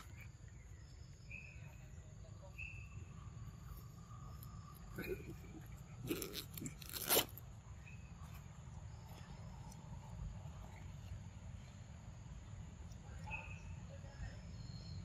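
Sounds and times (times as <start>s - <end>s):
monkey crunching food: 4.8s - 7.4s.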